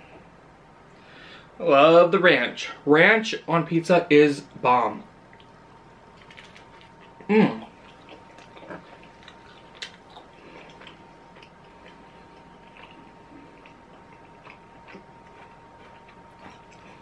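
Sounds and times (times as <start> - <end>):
person chewing food: 5.3 - 17.0.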